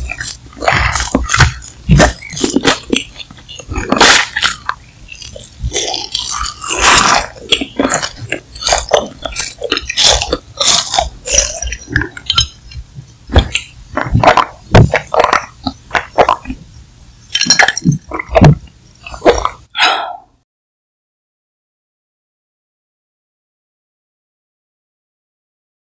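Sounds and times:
biting and chewing: 0.0s - 16.7s, 17.3s - 19.7s.

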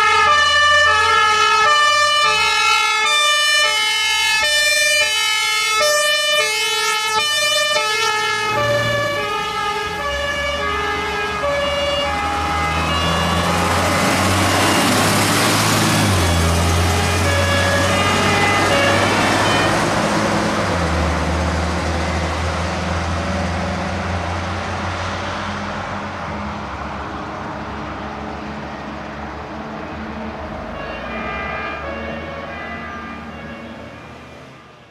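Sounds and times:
fire engine two-tone horn: 0.0s - 20.2s, 30.7s - 34.9s
truck diesel engine passing: 0.0s - 34.9s
tyres on road: 0.0s - 34.9s.

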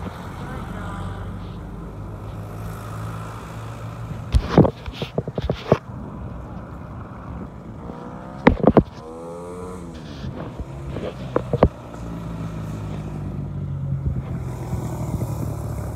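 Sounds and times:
low engine hum: 0.0s - 15.9s.

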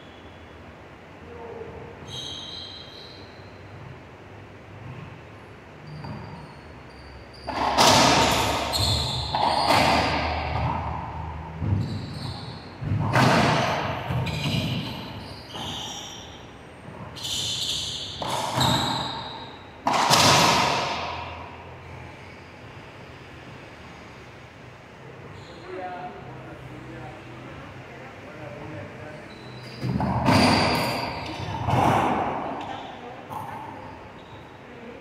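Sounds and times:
shoes squeaking on wooden floor: 5.8s - 10.6s, 11.6s - 19.6s
racquetball hits echoing: 7.4s - 16.3s, 16.9s - 21.6s, 29.7s - 34.0s.

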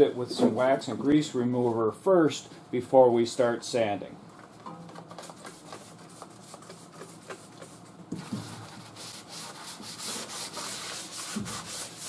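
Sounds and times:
cloth rag rubbing on metal: 8.6s - 12.0s.

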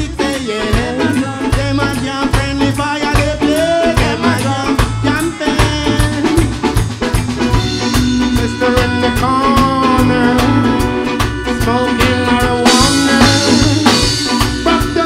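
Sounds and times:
live reggae band playing: 0.0s - 15.0s
snare and bass drum beat: 0.0s - 15.0s.

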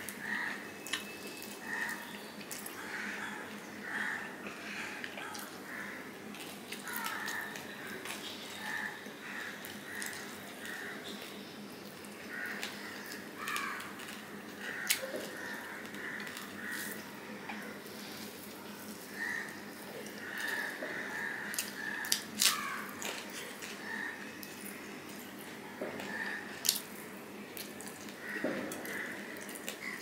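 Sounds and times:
wet chewing: 20.0s - 25.4s, 26.0s - 30.0s.

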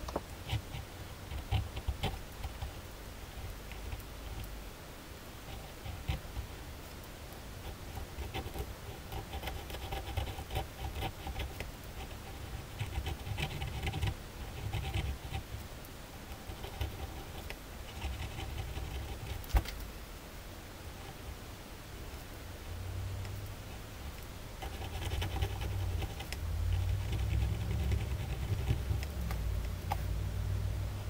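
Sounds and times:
pen scratching on paper: 0.4s - 2.8s, 7.6s - 15.6s, 16.4s - 19.5s, 24.6s - 29.2s.

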